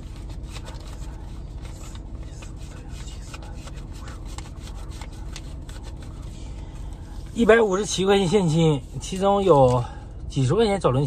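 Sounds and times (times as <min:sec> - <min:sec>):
banknotes rustling: 0:00.0 - 0:09.9
faint steady hum: 0:00.0 - 0:11.0.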